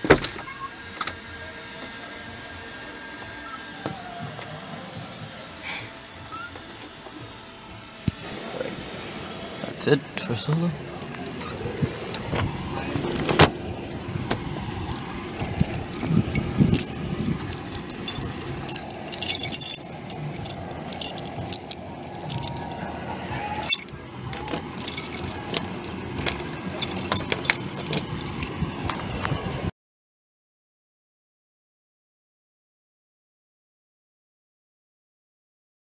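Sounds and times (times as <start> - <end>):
small clicks and jingles: 14.6 - 28.6.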